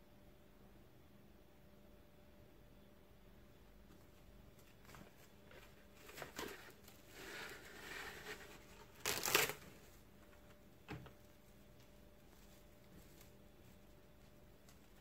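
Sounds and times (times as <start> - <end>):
rustling and crinkling handling noises: 3.8 - 15.0.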